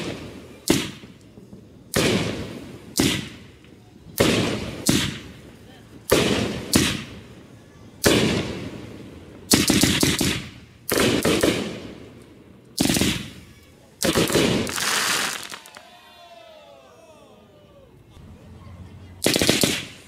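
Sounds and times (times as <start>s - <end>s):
firework booms: 0.0s - 15.8s
firework crackling: 0.0s - 16.1s, 19.1s - 20.0s.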